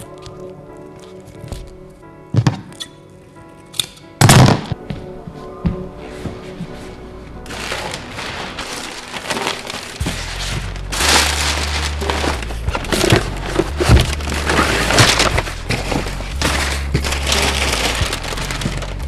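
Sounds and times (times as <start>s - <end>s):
background music: 0.0s - 19.0s
stiff cloth rustling and crackling: 5.4s - 19.0s.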